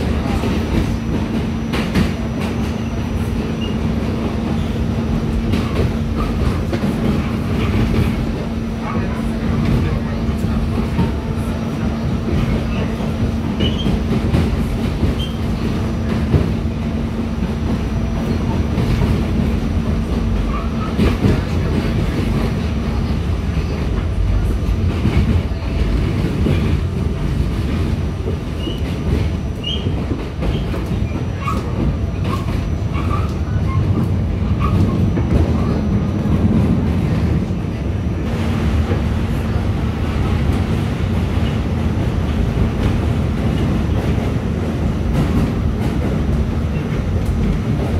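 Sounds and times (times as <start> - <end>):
train wheels rumbling on rails: 0.0 - 47.9
wheel squeals: 13.6 - 14.0, 29.6 - 31.7.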